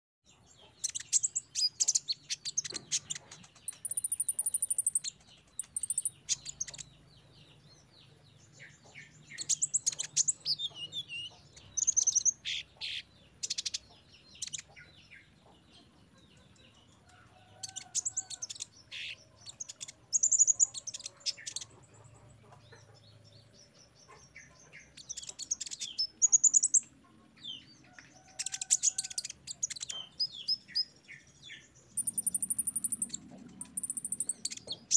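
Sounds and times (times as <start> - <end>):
bird chirping and trilling: 0.6 - 7.0, 8.7 - 15.6, 17.1 - 21.9, 22.8 - 34.9.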